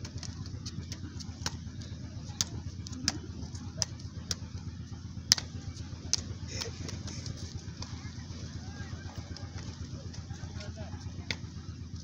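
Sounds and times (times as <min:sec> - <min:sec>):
ball kicked and bouncing on concrete: 0:00.0 - 0:04.6, 0:05.3 - 0:05.5
low steady rumble: 0:00.0 - 0:12.0.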